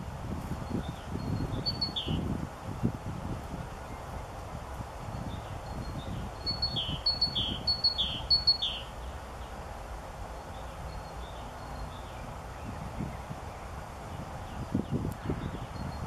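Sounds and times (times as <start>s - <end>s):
low wind rumble: 0.0s - 16.0s
songbird singing: 0.0s - 16.0s.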